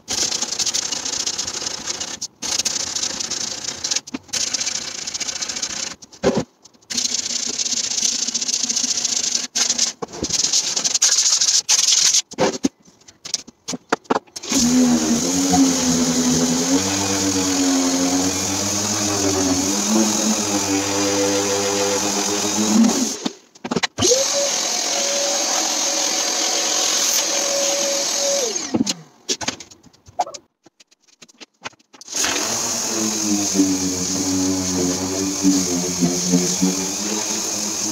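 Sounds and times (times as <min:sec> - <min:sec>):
electric sander humming: 0:14.4 - 0:23.2, 0:32.2 - 0:37.9.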